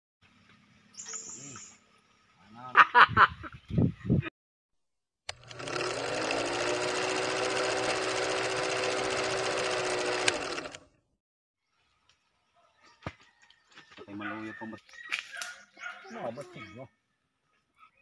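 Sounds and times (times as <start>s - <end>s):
faint outdoor sounds: 0.2s - 4.2s, 11.6s - 18.0s
film projector clatter: 5.3s - 10.8s
projector motor hum: 5.3s - 10.8s.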